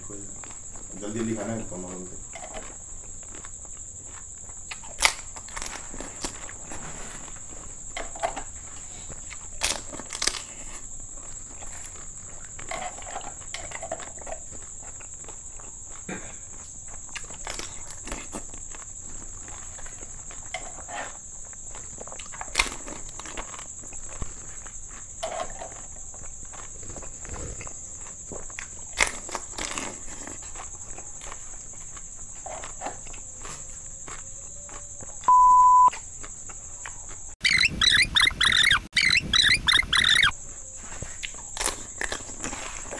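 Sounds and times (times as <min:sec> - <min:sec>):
short loud beep: 0:35.3 - 0:35.9.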